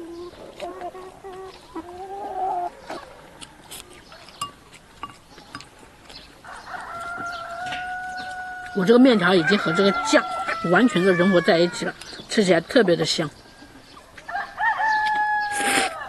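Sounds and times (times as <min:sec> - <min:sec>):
chickens clucking: 0:00.0 - 0:16.0
noodle slurping: 0:15.6 - 0:16.0.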